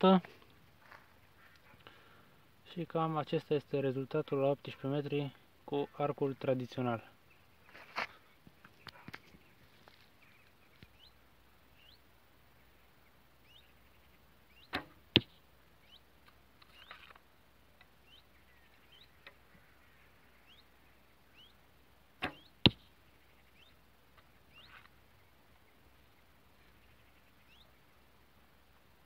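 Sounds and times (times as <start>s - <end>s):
arrow hitting target: 14.6s - 15.4s, 22.2s - 22.9s
bowstring release thump: 14.6s - 15.4s, 22.2s - 22.9s.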